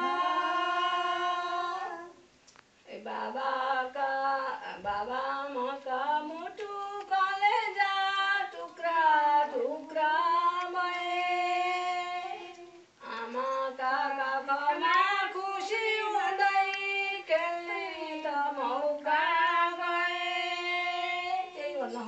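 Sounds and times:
woman singing unaccompanied: 0.0 - 22.0.

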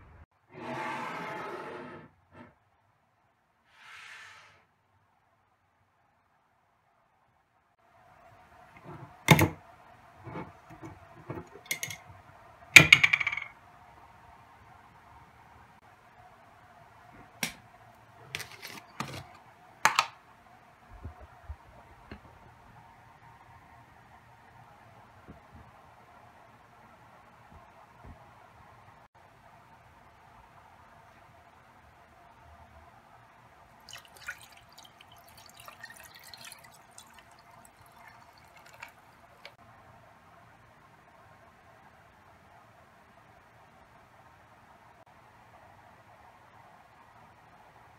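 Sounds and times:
water pouring and splashing: 33.8 - 39.6.

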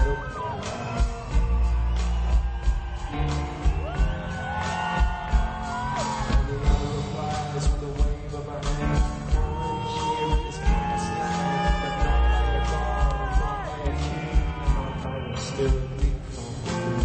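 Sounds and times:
deep bass drum: 0.0 - 15.1
live band playing: 0.0 - 17.0
men singing in harmony: 6.0 - 17.0.

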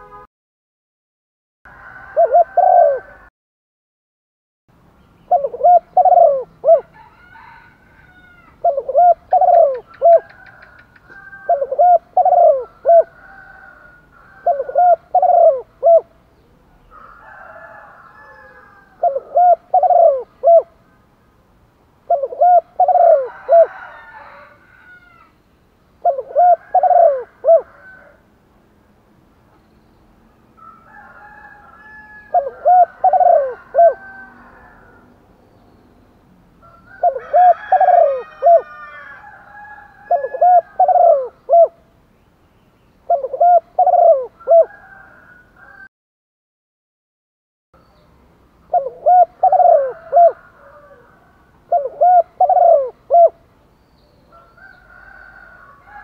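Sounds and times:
dove cooing: 1.9 - 3.3, 5.3 - 6.9, 8.4 - 16.2, 18.4 - 20.8, 22.0 - 24.3, 26.0 - 28.2, 31.7 - 35.0, 36.9 - 39.1, 39.8 - 41.8, 43.1 - 45.9, 48.7 - 53.4.

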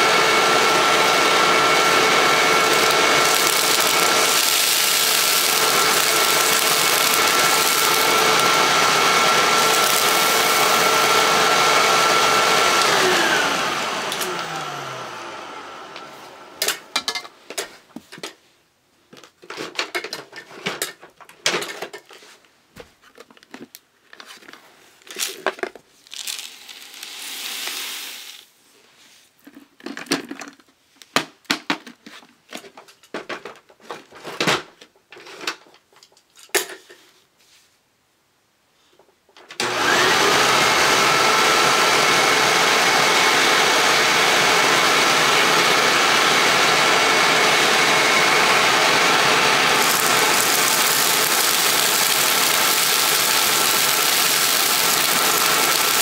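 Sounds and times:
vacuum cleaner running with whine: 0.0 - 17.0, 26.1 - 28.4, 39.6 - 56.0
rustling and clattering handling: 17.1 - 27.0, 28.8 - 37.7.

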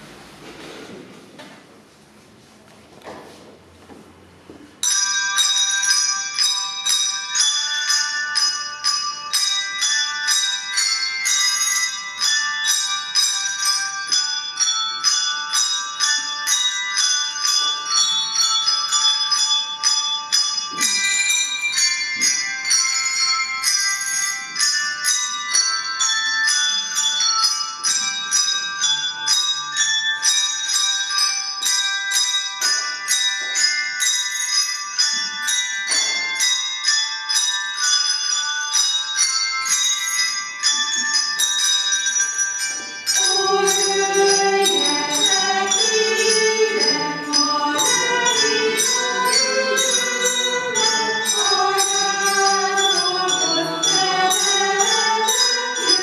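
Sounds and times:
handbell ensemble playing: 4.8 - 56.0.

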